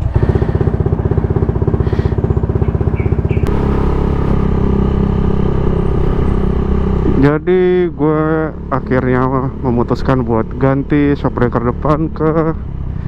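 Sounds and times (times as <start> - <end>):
scooter engine idling: 0.0 - 13.0
scooter engine riding along: 0.0 - 13.0.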